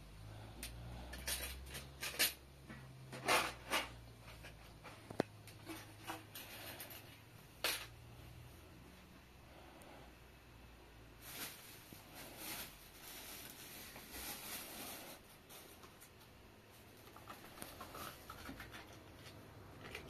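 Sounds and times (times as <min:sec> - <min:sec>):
cloth rustling: 0:11.2 - 0:16.0.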